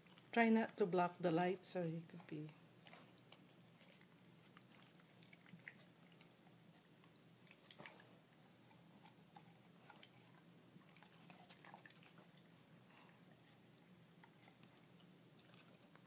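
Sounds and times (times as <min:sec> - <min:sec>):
dog chewing: 0:02.1 - 0:16.0.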